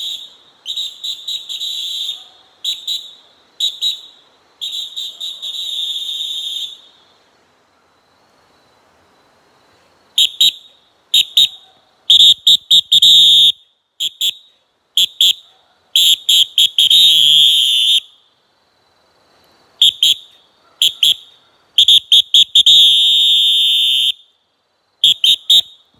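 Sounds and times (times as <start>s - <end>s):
shrill whistle blasts: 0.0s - 7.0s, 10.2s - 18.2s, 19.8s - 24.3s, 25.0s - 25.9s.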